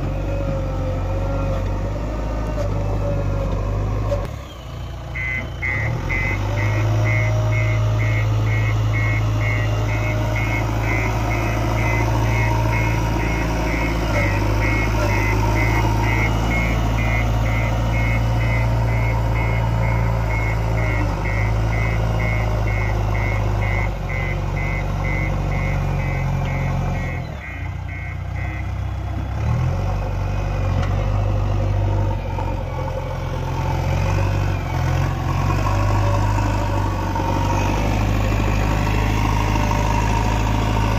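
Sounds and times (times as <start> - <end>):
diesel engine running: 0.0 - 40.9
reversing alarm beeping: 4.5 - 29.0.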